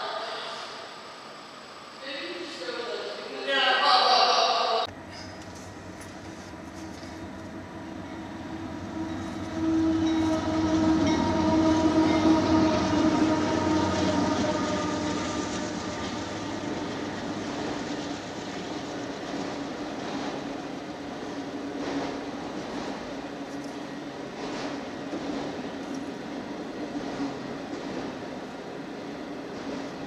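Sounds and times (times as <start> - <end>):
train rumbling past: 4.8 - 30.0
locomotive horn: 7.8 - 16.6.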